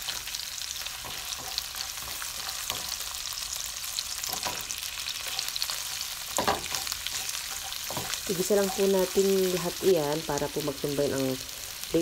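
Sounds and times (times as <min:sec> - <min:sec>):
spatula scraping wok: 0:00.0 - 0:03.4, 0:04.0 - 0:09.9
garlic sizzling in hot oil: 0:00.0 - 0:12.0.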